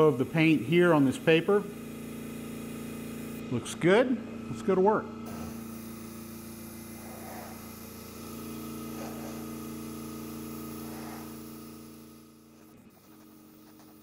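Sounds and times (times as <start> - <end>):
compressor humming: 0.0 - 14.0
airbrush hissing: 5.3 - 14.0.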